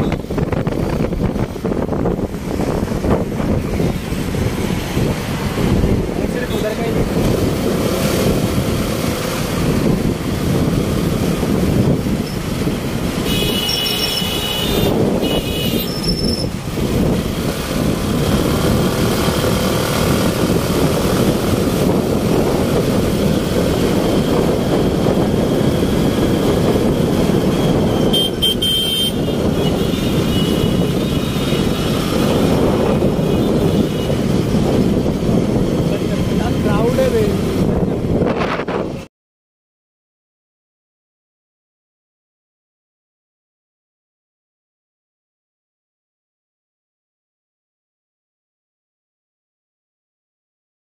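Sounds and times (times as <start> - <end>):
motorbike engine and wind noise: 0.0 - 39.1
vehicle horns honking: 13.2 - 16.4, 28.0 - 31.8.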